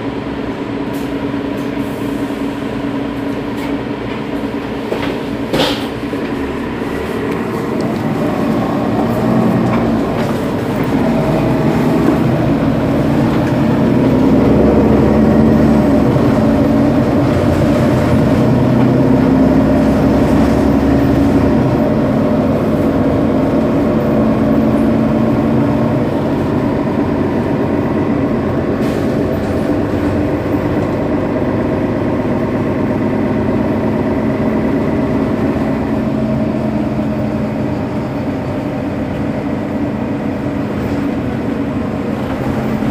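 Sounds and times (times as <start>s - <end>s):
bus diesel engine idling: 0.0s - 42.9s.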